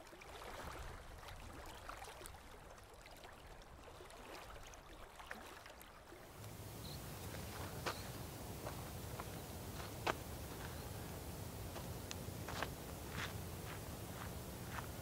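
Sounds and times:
water trickling and lapping: 0.0s - 15.0s
water drips: 6.2s - 15.0s.

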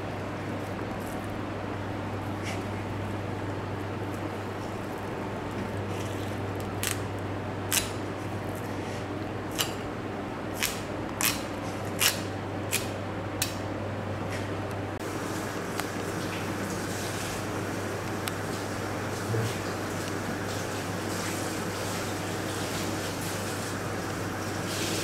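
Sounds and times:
steady low hum: 0.0s - 21.8s
knife cutting fish: 10.6s - 13.0s.

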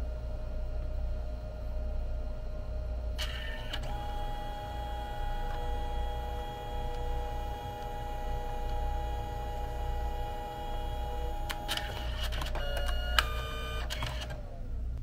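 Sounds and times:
printer motor whining: 3.2s - 14.6s
printer clicks: 11.4s - 14.4s.

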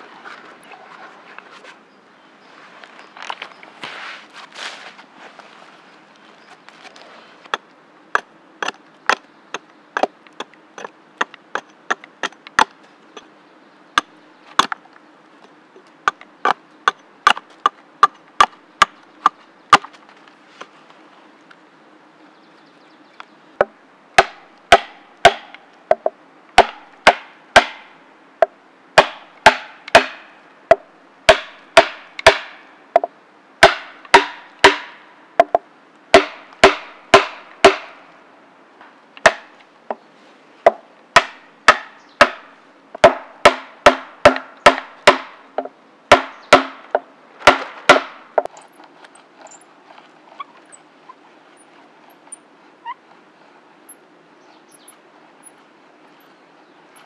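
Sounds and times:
axe striking wooden stakes: 8.2s - 13.3s, 14.0s - 14.8s, 16.0s - 20.0s, 23.6s - 38.0s, 39.2s - 39.6s, 40.7s - 48.5s.

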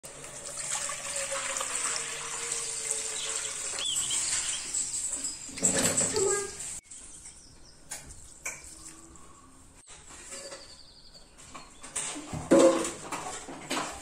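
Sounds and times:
water running into a pot: 0.0s - 6.8s
pot clattering: 11.6s - 14.0s.

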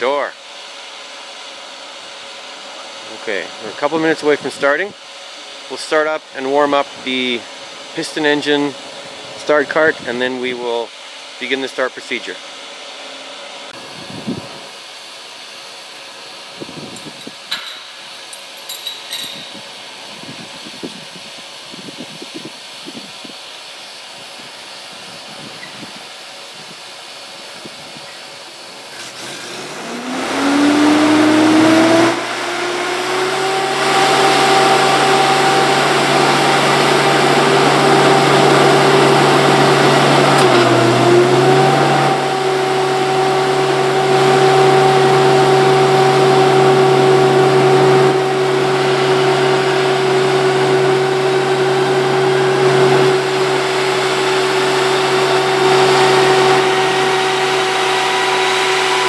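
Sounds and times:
engine starting and running: 27.4s - 59.0s.

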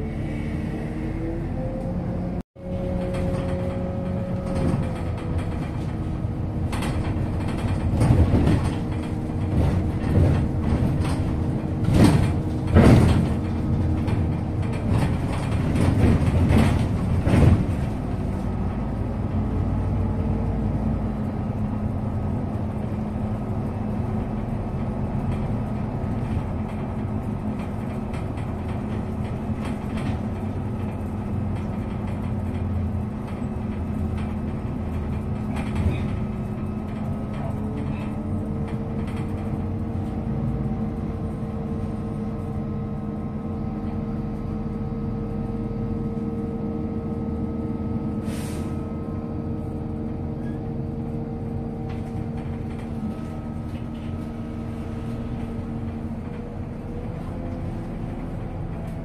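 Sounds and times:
bus engine hum and whine: 0.0s - 59.0s
loud knocks and rattles: 2.9s - 18.8s, 23.6s - 40.1s.

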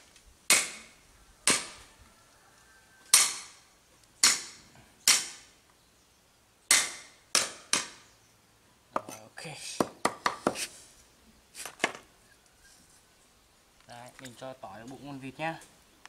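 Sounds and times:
cleaver knocking on wooden block: 8.9s - 9.2s, 9.8s - 10.6s.

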